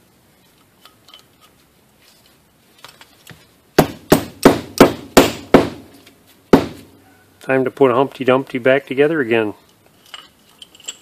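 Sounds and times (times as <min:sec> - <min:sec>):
faint clicks of parts: 0:00.4 - 0:03.5, 0:09.6 - 0:11.0.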